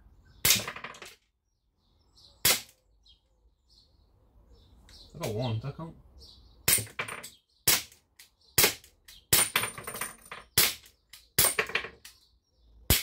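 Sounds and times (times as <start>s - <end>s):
air pistol shots: 0.4s - 0.9s, 2.4s - 2.8s, 7.6s - 8.0s.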